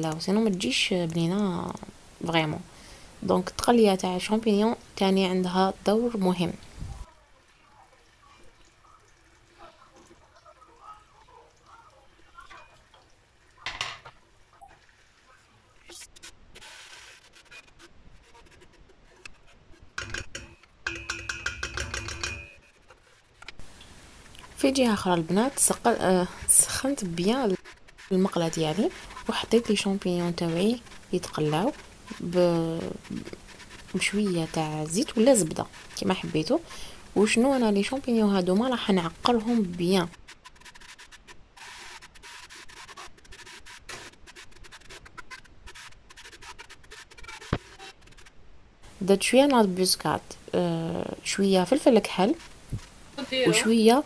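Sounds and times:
metal pot ringing: 0:20.8 - 0:22.7
wooden spoon scraping metal pot: 0:24.4 - 0:48.2.

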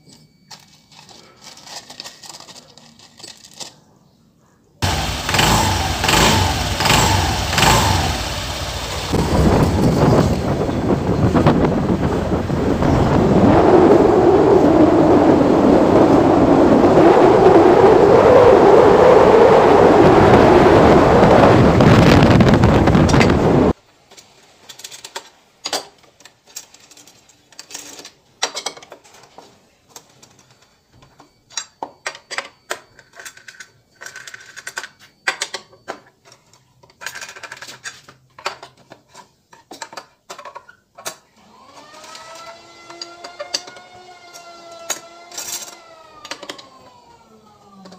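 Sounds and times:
scooter engine running: 0:04.8 - 0:12.8
wind on microphone: 0:09.0 - 0:23.8.

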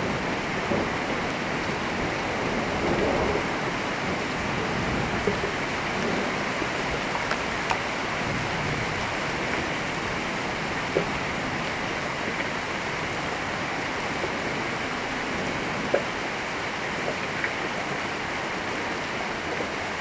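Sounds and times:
steady rain hiss: 0:00.0 - 0:20.0
faint clicks: 0:05.2 - 0:08.0.

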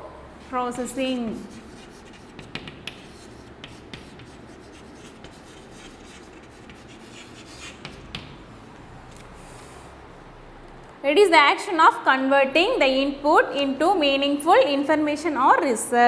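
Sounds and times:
chalk tapping on blackboard: 0:01.4 - 0:08.4.

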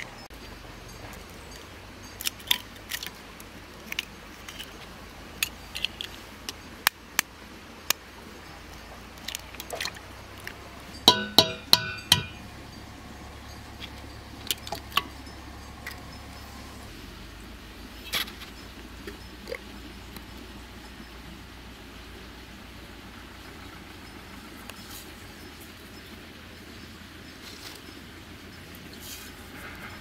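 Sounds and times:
utensils and dishware clinking: 0:10.9 - 0:12.5.

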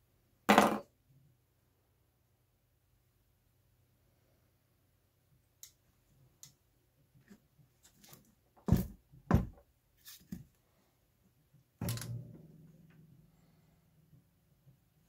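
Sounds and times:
heavy ringing thud: 0:11.8 - 0:13.7.

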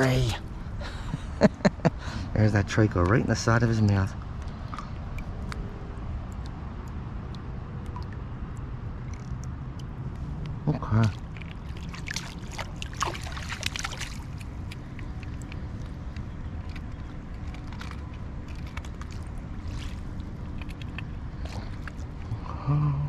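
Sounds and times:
low water rush: 0:00.0 - 0:23.0
fish thrashing in water: 0:10.8 - 0:22.4.

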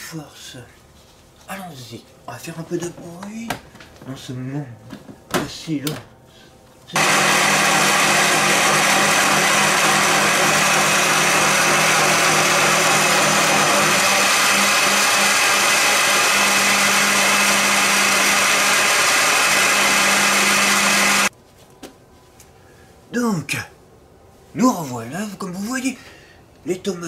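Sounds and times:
electric blender running: 0:07.0 - 0:21.3.

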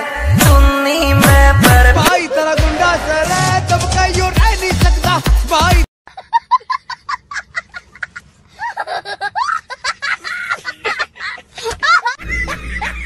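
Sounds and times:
high-pitched laughter: 0:06.1 - 0:13.0.

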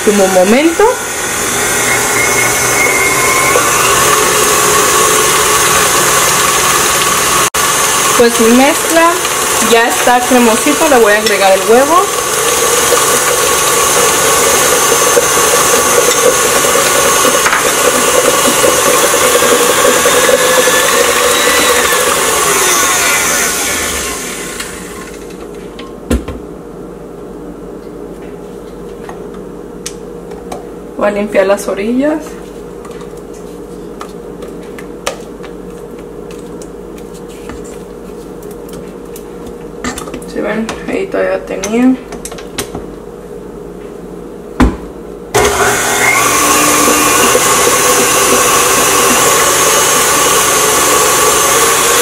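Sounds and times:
stand mixer motor humming: 0:00.0 - 0:25.3, 0:45.4 - 0:52.0
steady mechanical hum: 0:24.5 - 0:45.4.

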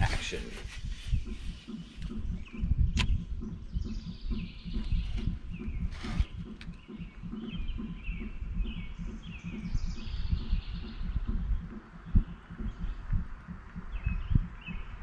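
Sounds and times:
low irregular thumps: 0:00.0 - 0:15.0
songbirds chirping: 0:00.0 - 0:15.0
sharp click: 0:01.7 - 0:03.6.

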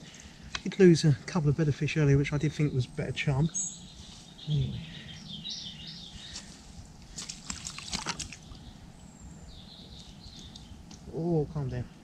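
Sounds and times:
bird singing: 0:00.0 - 0:12.0
water sloshing and dripping: 0:07.0 - 0:08.7
splashy fish handling: 0:07.1 - 0:08.6.

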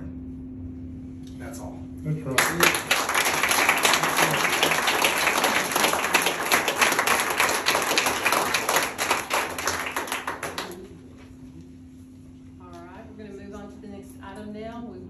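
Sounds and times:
audience clapping: 0:02.3 - 0:11.2.

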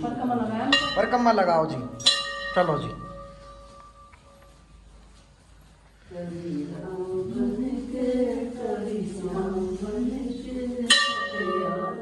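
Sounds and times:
temple bell ringing: 0:00.6 - 0:04.6, 0:10.9 - 0:12.0
devotional singing: 0:06.1 - 0:12.0.

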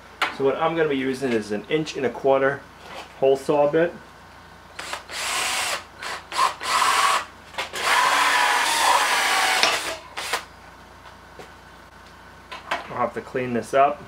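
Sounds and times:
cordless drill with hole saw cutting wood: 0:04.8 - 0:10.4.

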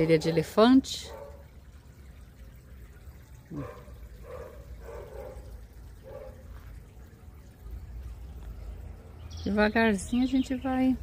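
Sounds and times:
dog barking faintly: 0:03.5 - 0:06.4.

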